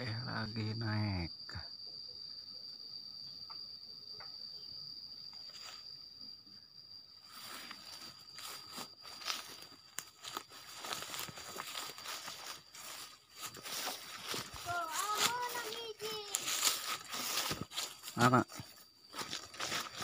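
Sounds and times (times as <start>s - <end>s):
high-pitched insect drone: 0.0s - 20.0s
footsteps crunching through dry leaves: 7.3s - 20.0s.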